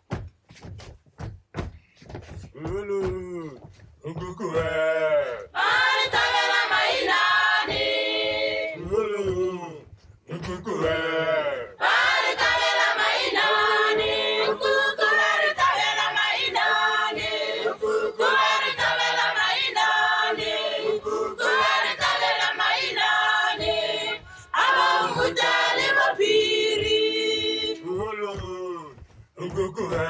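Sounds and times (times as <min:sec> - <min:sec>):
choir singing: 0:05.5 - 0:08.8, 0:10.8 - 0:27.8.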